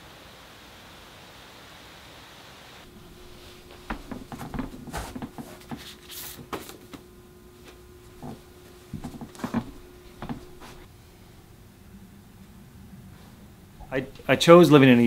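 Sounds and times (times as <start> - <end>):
faint steady hum: 0.0 - 15.0
footsteps on wooden floor: 2.9 - 6.0, 7.6 - 10.9
book pages rustling: 2.9 - 10.9
knocks against wooden bookshelf: 3.0 - 5.9, 8.2 - 10.9.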